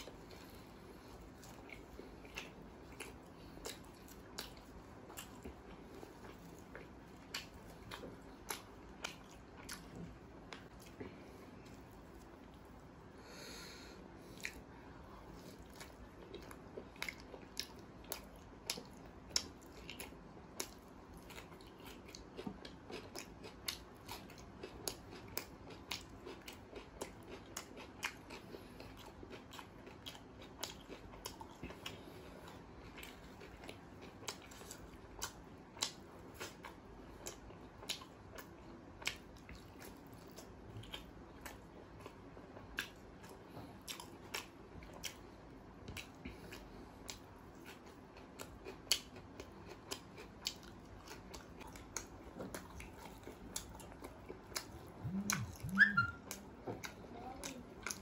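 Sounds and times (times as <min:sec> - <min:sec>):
close chewing of food: 0:00.0 - 0:58.0
wet mouth clicks and smacks: 0:54.6 - 0:56.4.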